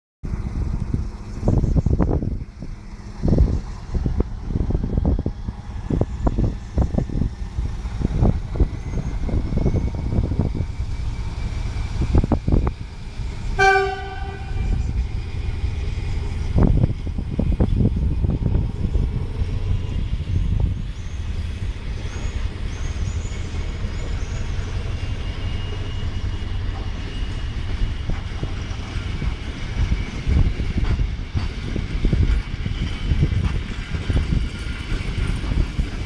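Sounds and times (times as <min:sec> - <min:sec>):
diesel locomotive rumbling: 0:00.2 - 0:36.0
locomotive horn toot: 0:13.6 - 0:15.0.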